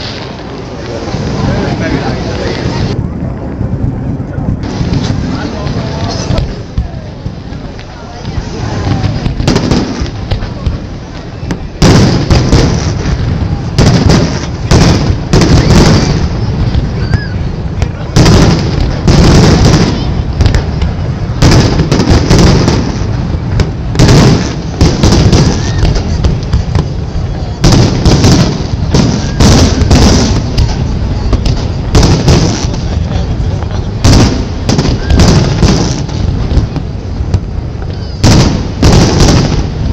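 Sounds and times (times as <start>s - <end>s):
fireworks booming: 0.0s - 39.9s
low rumble: 0.0s - 39.9s.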